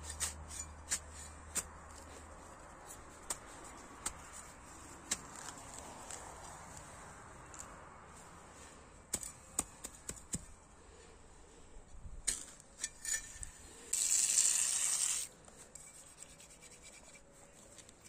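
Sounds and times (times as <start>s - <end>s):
trowel rubbing hiss in turf: 13.8s - 15.3s.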